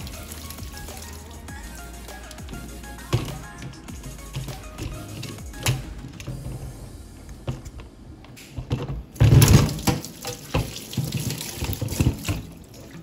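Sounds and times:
liquid spraying and splashing: 0.0s - 3.3s, 9.6s - 13.0s.

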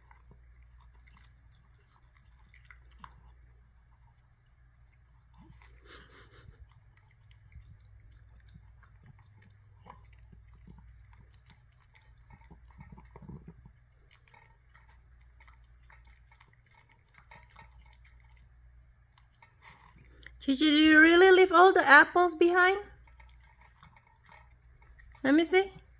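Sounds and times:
dog chewing and crunching: 0.0s - 25.9s.

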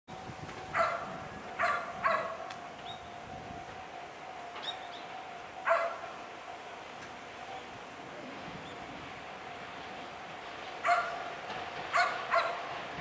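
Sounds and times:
dog barking: 0.8s - 2.4s, 5.7s - 6.1s, 10.8s - 11.2s, 11.9s - 12.6s.

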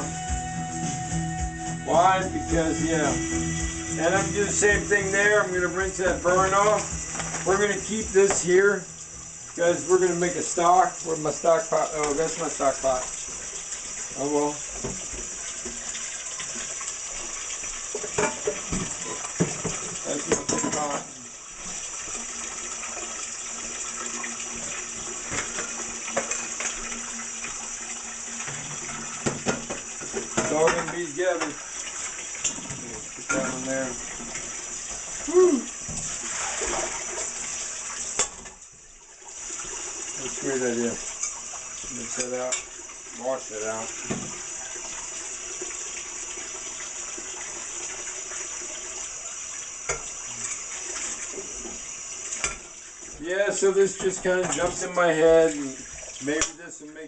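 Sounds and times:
faucet water splashing into bowl: 3.8s - 56.6s
tap running into sink: 4.0s - 10.2s, 14.7s - 22.2s, 22.9s - 27.6s, 28.4s - 35.2s, 35.8s - 38.6s, 43.6s - 45.0s, 49.9s - 56.6s
colander and bowl clattering: 17.9s - 21.1s, 28.4s - 31.6s, 32.4s - 34.6s, 53.7s - 55.2s.

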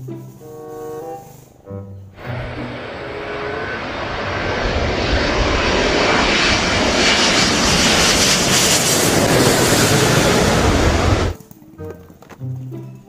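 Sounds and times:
jet airliner passing overhead: 2.2s - 11.4s.

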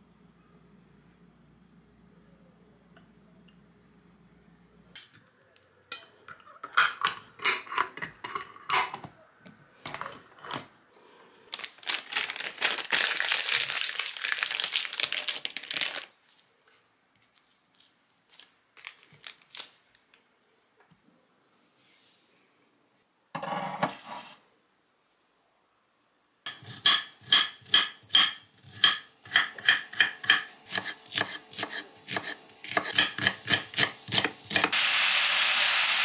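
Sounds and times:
cloth cover crinkling and rustling: 11.6s - 16.5s.

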